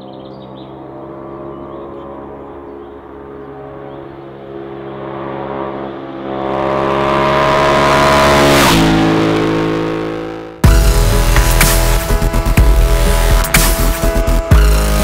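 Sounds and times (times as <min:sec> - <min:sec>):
motorcycle passing at speed: 0:00.0 - 0:14.5.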